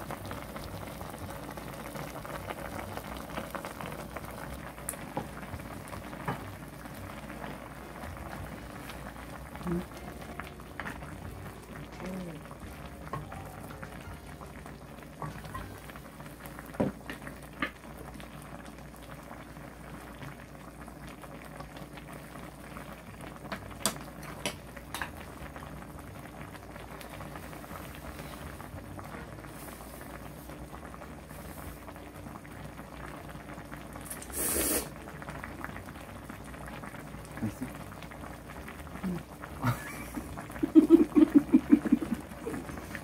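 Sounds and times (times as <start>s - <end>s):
soup bubbling in a pan: 0.0s - 43.0s
noodle slurp: 34.2s - 34.9s.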